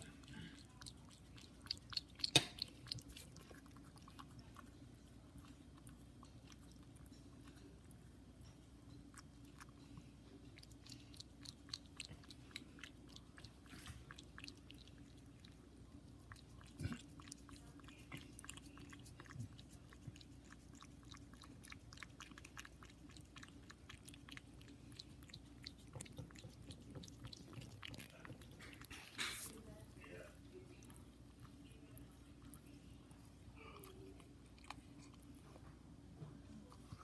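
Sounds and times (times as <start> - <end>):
cat lapping tongue clicks: 0.1 - 15.7.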